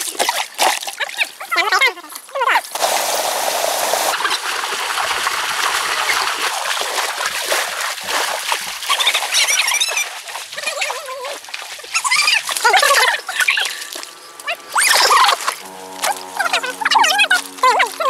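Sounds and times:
water splashing and trickling: 0.0s - 18.0s
high wavering animal calls: 8.9s - 18.0s.

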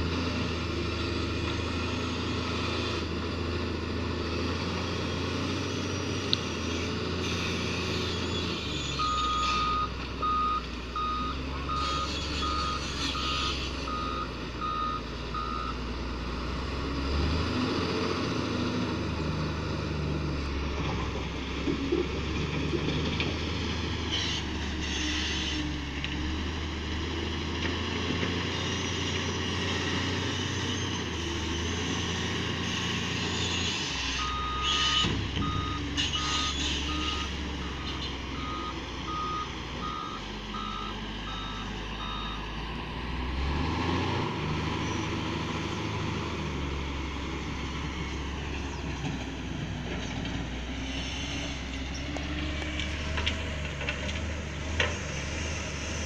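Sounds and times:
diesel engine under load: 0.0s - 56.0s
reversing alarm beeps: 9.0s - 15.8s, 34.2s - 42.5s.

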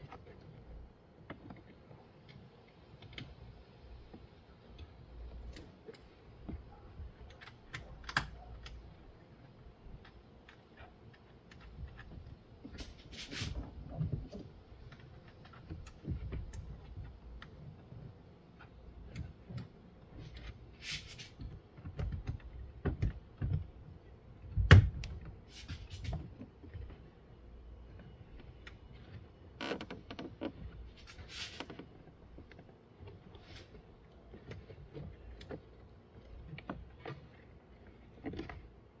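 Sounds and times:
clicks and taps of plastic trim: 21.4s - 23.9s.

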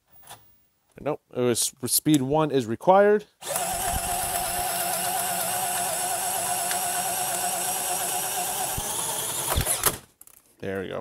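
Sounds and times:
cordless drill boring into wood: 3.4s - 10.0s.

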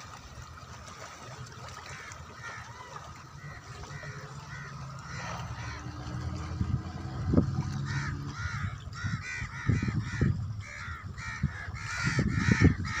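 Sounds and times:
low rumble: 3.5s - 10.8s
crows cawing: 3.8s - 6.0s, 7.7s - 13.0s.

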